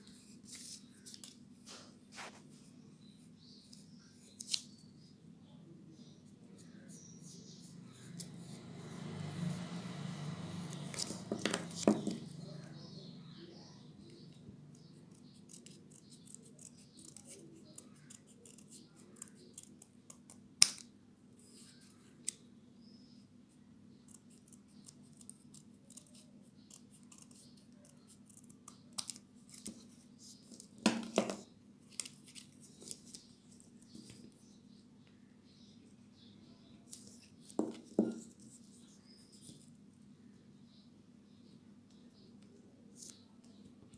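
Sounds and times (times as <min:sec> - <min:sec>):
faint low hum: 0:00.0 - 0:43.9
scissors snipping paper: 0:15.1 - 0:20.9, 0:24.1 - 0:29.8.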